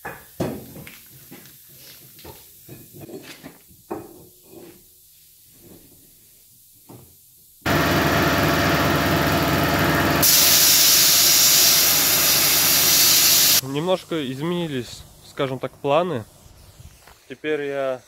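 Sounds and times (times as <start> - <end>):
knocks and clatter of garage work: 0.0 - 4.9, 6.8 - 9.0
sandblasting gun hissing: 7.7 - 13.6.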